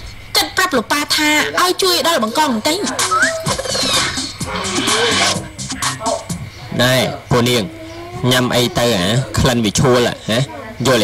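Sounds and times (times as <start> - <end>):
background music: 2.7 - 6.5
hiss-like noise burst: 2.9 - 6.6.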